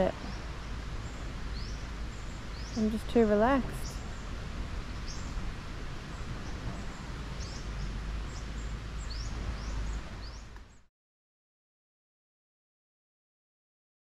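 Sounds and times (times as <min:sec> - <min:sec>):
sea waves: 0:00.0 - 0:10.7
small birds chirping: 0:00.0 - 0:10.9.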